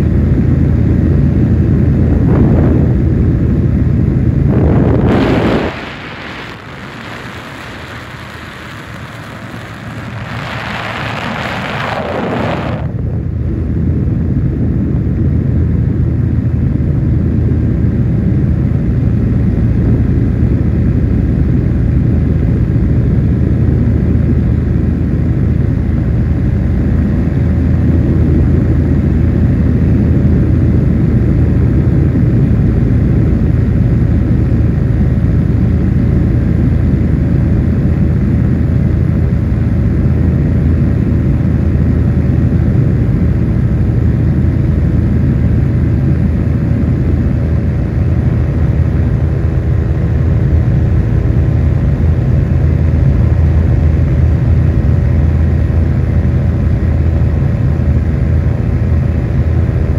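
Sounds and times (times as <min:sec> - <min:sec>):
light aircraft engine droning: 0:00.0 - 0:59.9
even rushing noise: 0:01.7 - 0:13.4.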